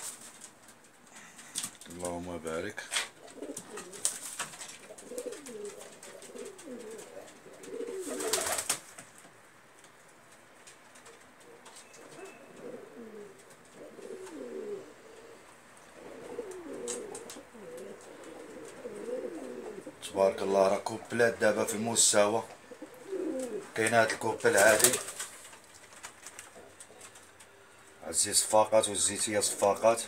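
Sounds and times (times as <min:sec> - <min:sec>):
rustle: 0:00.0 - 0:30.0
pigeons cooing: 0:03.0 - 0:08.8, 0:11.0 - 0:28.0.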